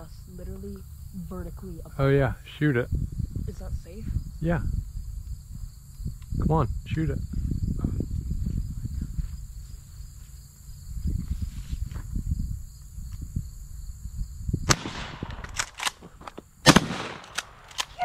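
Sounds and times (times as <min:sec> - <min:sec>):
insects buzzing: 0:00.0 - 0:18.0
shotgun blast: 0:14.7 - 0:15.9, 0:16.6 - 0:18.0
sharp crack: 0:14.7 - 0:18.0.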